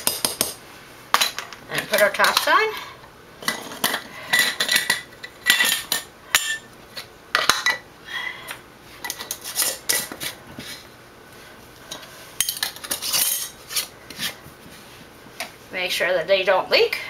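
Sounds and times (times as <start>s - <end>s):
metal lids clinking on glass jars: 3.4s - 6.7s.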